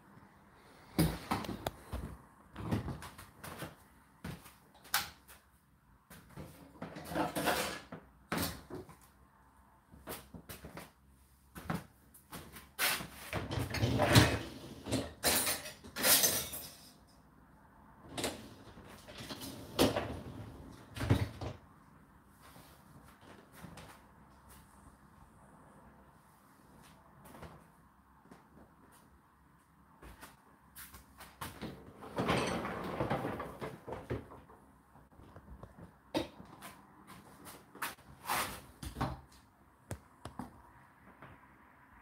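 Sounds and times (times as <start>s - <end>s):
dishes clattering into dishwasher racks: 6.8s - 8.0s, 13.5s - 17.0s, 32.1s - 33.7s.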